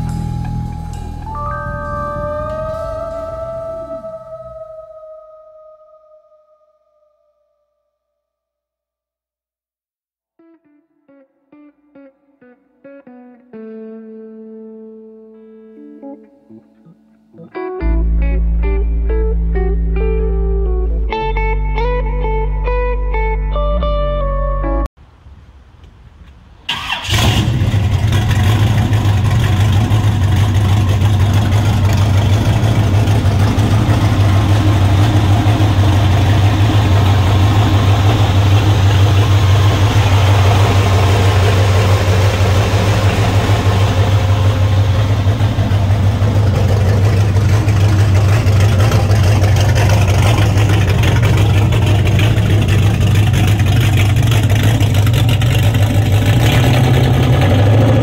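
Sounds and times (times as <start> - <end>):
engine starting and idling: 26.7 - 58.0.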